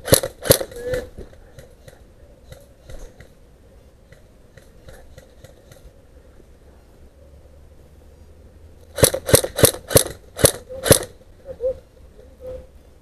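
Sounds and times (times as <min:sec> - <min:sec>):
airsoft gun shots: 0:00.0 - 0:01.1, 0:09.0 - 0:11.2.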